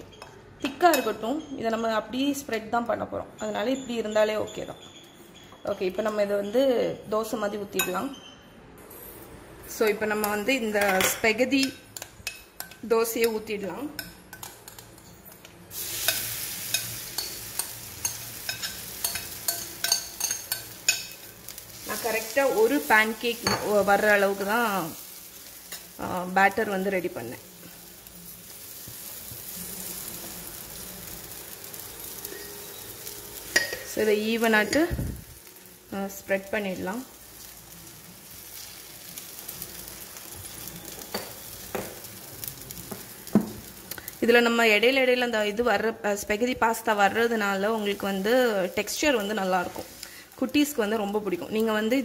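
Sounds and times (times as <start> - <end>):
batter sizzling on hot griddle: 9.8 - 52.0.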